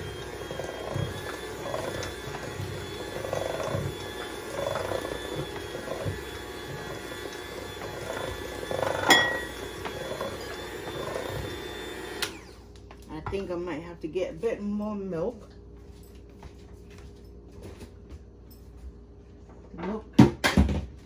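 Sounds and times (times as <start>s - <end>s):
electric hand mixer running: 0.0s - 12.7s
beater clinking against bowl: 0.6s - 11.7s.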